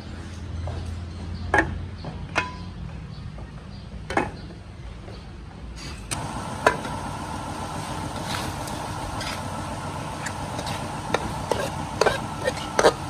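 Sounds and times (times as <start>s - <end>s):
ladle stirring and knocking wok: 8.0s - 13.0s.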